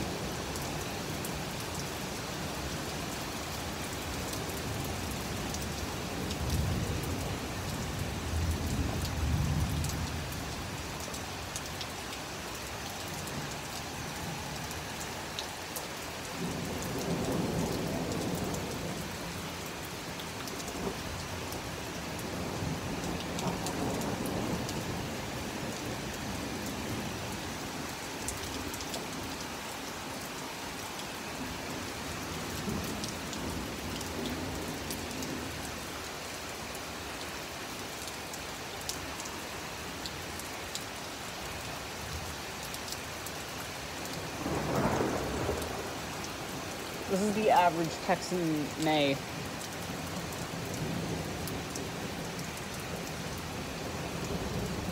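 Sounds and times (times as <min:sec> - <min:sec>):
heavy rain falling: 0:00.0 - 0:54.9
thunder rumbling: 0:44.4 - 0:46.0.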